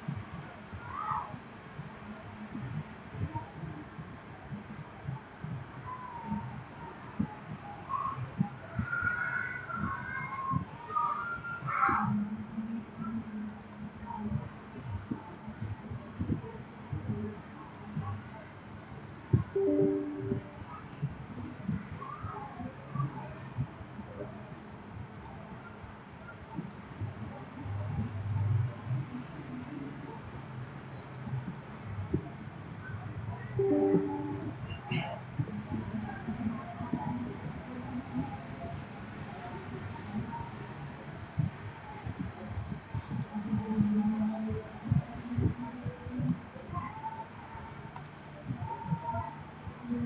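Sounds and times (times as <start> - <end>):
computer mouse clicking: 4.0 - 4.2, 7.5 - 7.7, 13.5 - 13.8, 14.4 - 15.5, 19.1 - 19.4, 23.4 - 23.7, 24.4 - 25.4, 26.1 - 26.8, 28.0 - 29.8, 31.0 - 31.7, 35.8 - 36.2, 36.8 - 37.1, 38.4 - 40.6, 42.0 - 43.4, 44.0 - 44.5, 47.6 - 48.9
low steady hum: 19.1 - 50.0.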